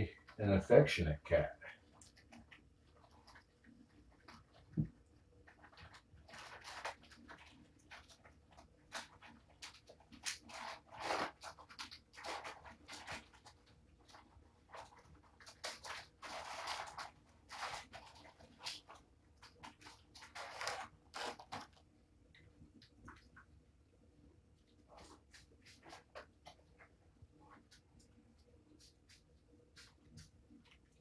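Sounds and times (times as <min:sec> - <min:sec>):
plastic pouch crinkling: 0:05.4 - 0:21.9.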